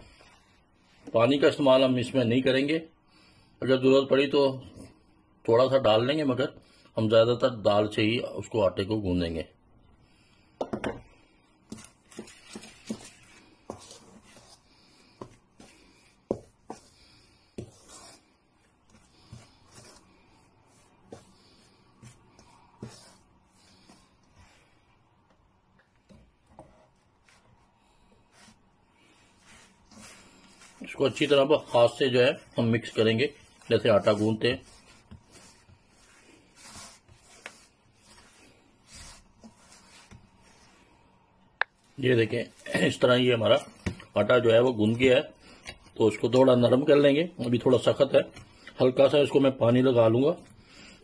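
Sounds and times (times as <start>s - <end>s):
soft rubbing: 11.6s - 44.4s
hands kneading dough in steel bowl: 11.7s - 24.7s, 26.0s - 41.0s.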